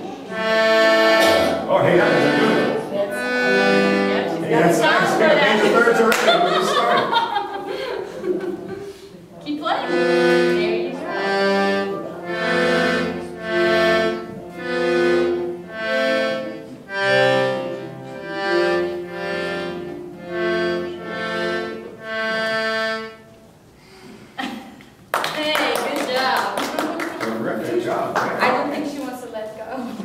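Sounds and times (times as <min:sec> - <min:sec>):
accordion chords: 0:00.0 - 0:23.8.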